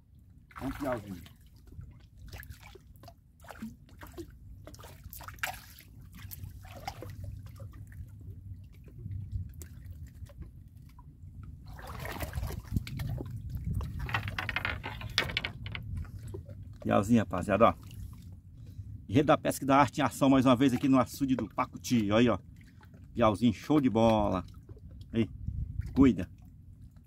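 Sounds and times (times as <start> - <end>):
water splashing and dripping: 0.5 - 16.9
low steady rumble: 5.9 - 20.5.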